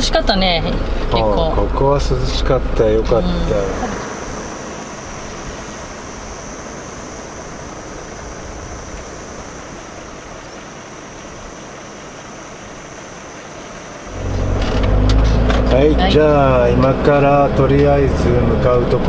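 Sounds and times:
rushing outdoor background noise: 0.0 - 19.0
high-pitched hiss: 3.1 - 17.4.

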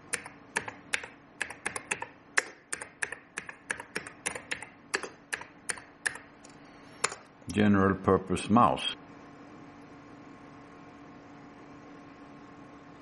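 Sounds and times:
keyboard key clicks: 0.1 - 6.2.

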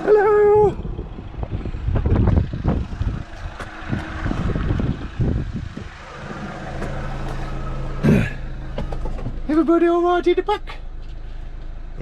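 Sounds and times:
low rumble: 0.0 - 9.6
engine humming: 0.0 - 12.0
knocks and bumps: 8.0 - 9.5.

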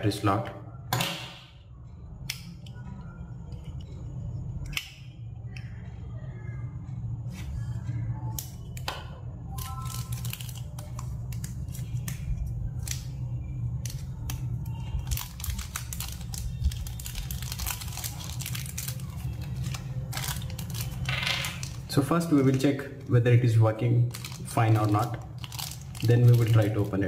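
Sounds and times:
steady low hum: 0.0 - 27.0
plastic bag crinkling: 9.6 - 12.0, 14.1 - 27.0.

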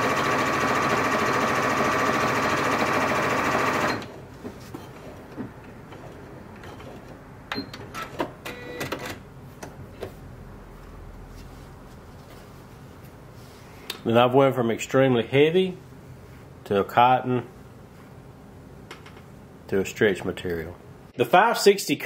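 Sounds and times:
sewing machine running: 0.0 - 4.1.

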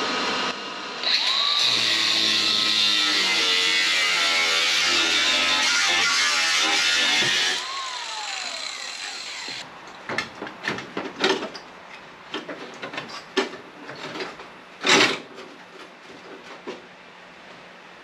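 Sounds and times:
hand tool scraping sheet metal: 1.7 - 7.6.

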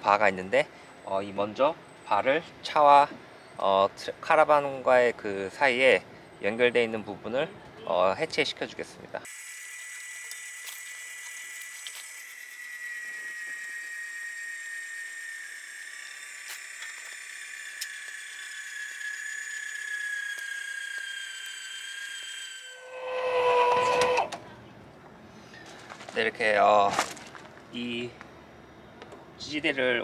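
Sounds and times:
electric jack motor whining: 9.3 - 24.5
low tone: 22.5 - 25.0.

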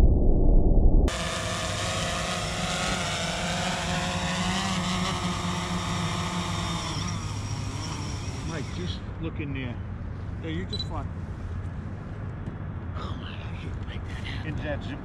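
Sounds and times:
drone propellers whining: 1.1 - 9.2.

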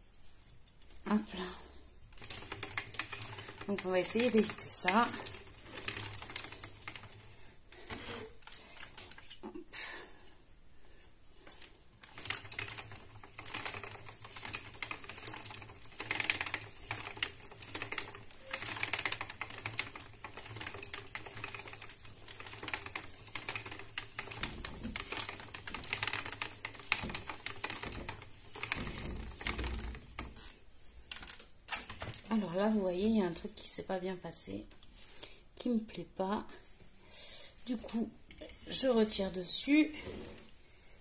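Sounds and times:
spinning wheel clicking clatter: 2.2 - 7.3, 12.0 - 30.3.

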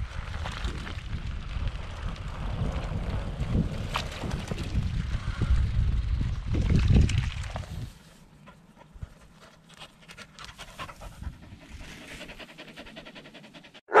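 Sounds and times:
dog panting: 8.4 - 14.0.

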